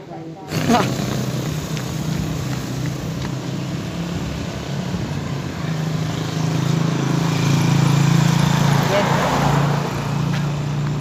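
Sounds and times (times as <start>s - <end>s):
street noise: 0.0s - 11.0s
vehicle engine running: 0.5s - 11.0s.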